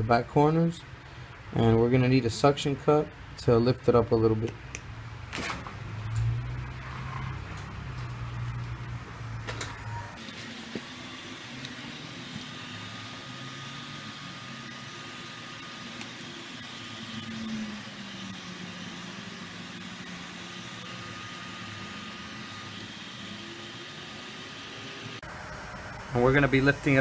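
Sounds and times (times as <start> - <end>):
heat gun fan blowing: 7.3 - 27.0.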